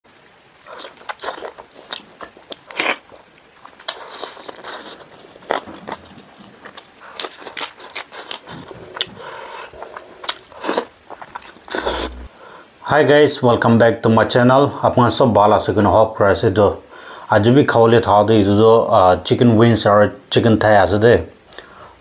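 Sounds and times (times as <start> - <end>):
chewing with sharp crunches: 0.6 - 12.3.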